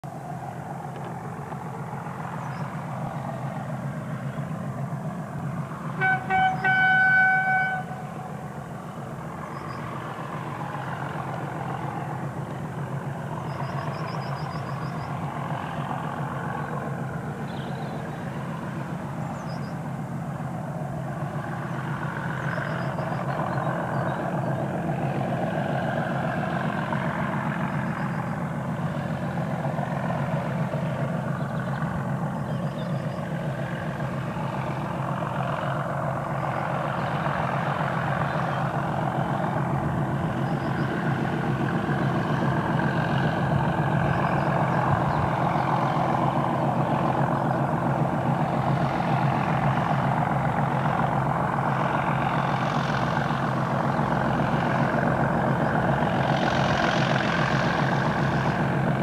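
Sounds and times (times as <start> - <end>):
diesel locomotive engines rumbling: 0.0 - 59.0
locomotive horn: 5.8 - 8.4
faint bird chirps: 9.4 - 9.9, 13.4 - 15.2, 17.4 - 18.2, 19.3 - 19.8, 40.3 - 41.0.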